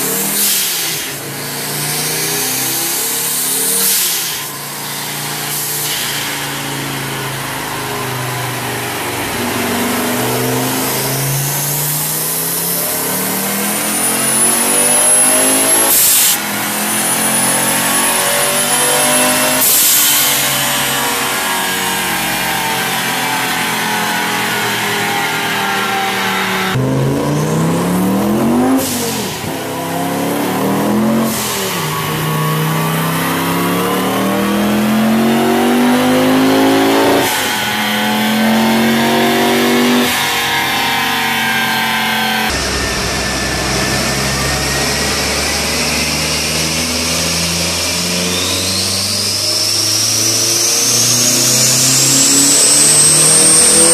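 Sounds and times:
turbocharged engine revving: 0.0s - 53.9s
turbo whistle: 47.8s - 53.9s.

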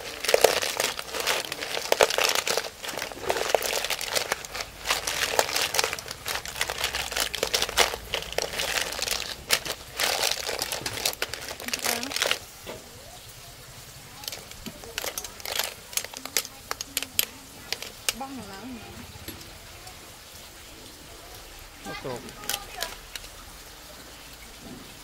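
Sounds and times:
metal ladle stirring: 0.0s - 12.4s, 14.2s - 18.4s
snail shells clattering in metal pot: 0.0s - 12.8s, 14.1s - 18.9s, 21.9s - 23.4s.

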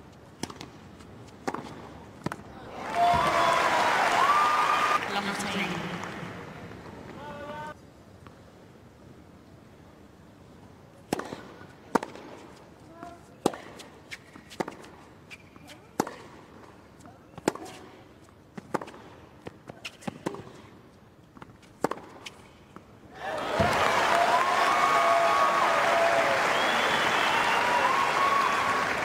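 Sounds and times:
racquets striking tennis ball: 0.3s - 3.4s, 11.0s - 22.9s
crowd applause and cheering: 2.7s - 6.7s, 23.2s - 29.0s.

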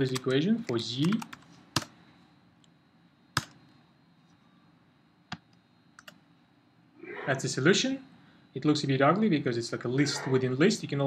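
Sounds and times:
computer keyboard keystrokes: 0.0s - 0.4s, 1.0s - 1.9s, 5.3s - 6.2s.

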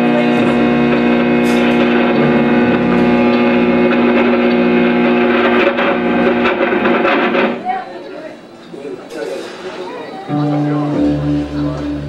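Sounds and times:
distorted electric guitar drone: 0.0s - 7.6s, 10.3s - 12.0s.

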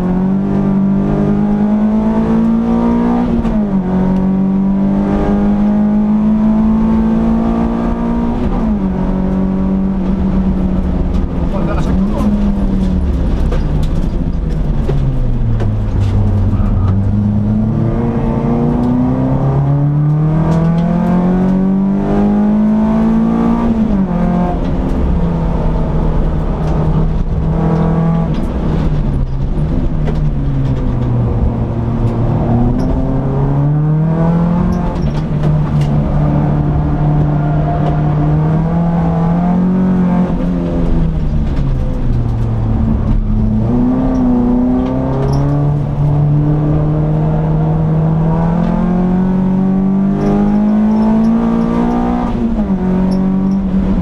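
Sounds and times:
car engine revving: 0.0s - 54.0s
road and wind noise: 0.0s - 54.0s.

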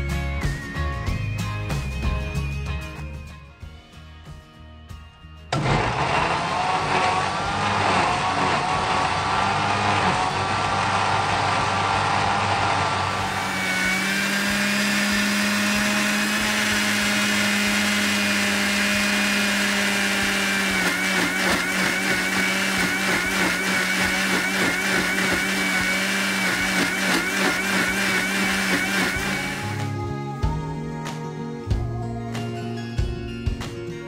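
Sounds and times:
electric blender running: 5.5s - 29.9s.

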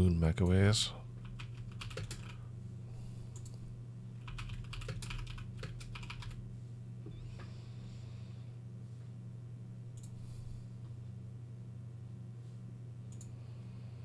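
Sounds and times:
steady low hum: 0.0s - 14.0s
typing on computer keyboard: 1.2s - 2.4s, 4.2s - 6.4s.

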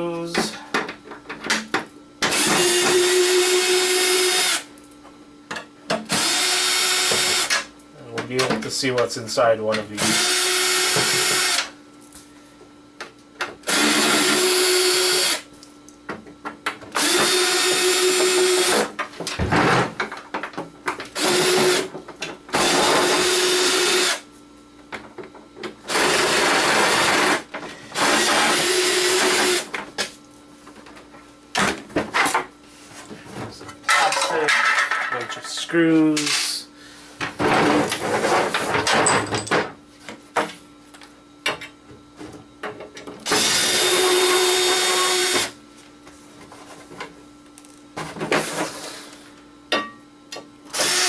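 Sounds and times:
cordless drill running: 2.3s - 4.7s, 6.1s - 7.6s, 10.0s - 11.7s, 13.7s - 15.5s, 17.0s - 18.9s, 21.2s - 21.9s, 22.6s - 24.2s, 25.9s - 27.4s, 28.0s - 29.7s, 43.3s - 45.5s, 50.7s - 51.0s.

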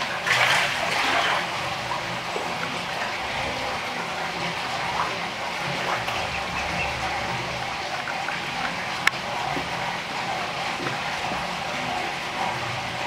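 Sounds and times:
alligator splashing: 0.0s - 9.8s
running water: 0.0s - 13.0s.

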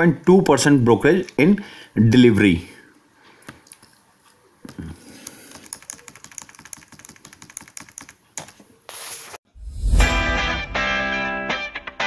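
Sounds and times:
keyboard keys clicking: 5.5s - 8.6s
loud music: 9.9s - 12.0s.

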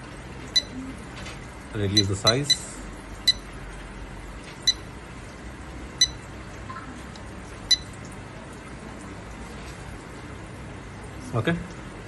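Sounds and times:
short high touchscreen beeps: 0.6s - 0.8s, 2.0s - 3.5s, 4.6s - 4.9s, 6.0s - 6.2s, 7.7s - 7.9s.

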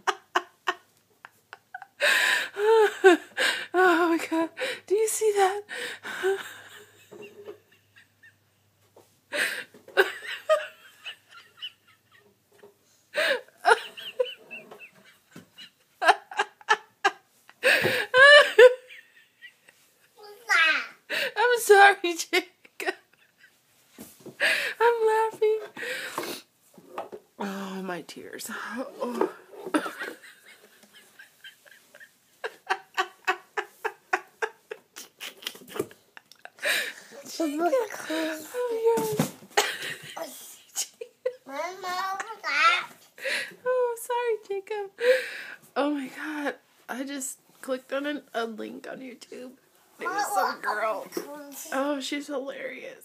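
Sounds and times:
woman laughing hard: 16.0s - 19.5s, 29.7s - 36.9s.

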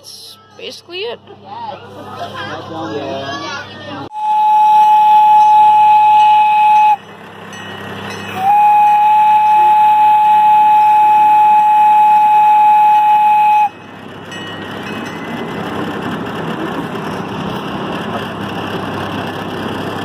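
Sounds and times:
train whistle blowing: 4.1s - 7.1s, 8.3s - 13.8s.

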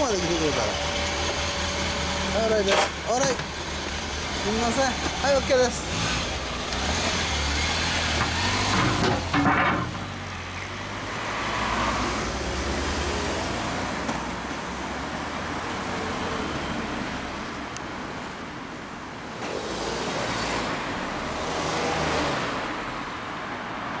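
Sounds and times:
road traffic noise: 0.0s - 24.0s
motorcycle pulling away: 3.4s - 9.3s
vehicle passing by: 10.7s - 14.0s.

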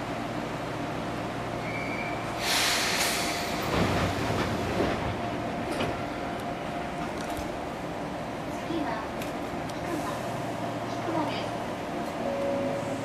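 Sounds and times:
train low rumble: 0.0s - 13.0s
compressed-air hiss: 2.4s - 3.5s.

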